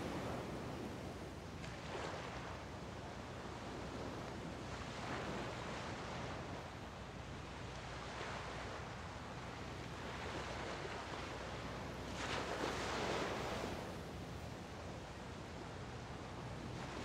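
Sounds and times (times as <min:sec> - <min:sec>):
wind: 0:00.0 - 0:17.0
small waves washing onto beach: 0:07.8 - 0:17.0.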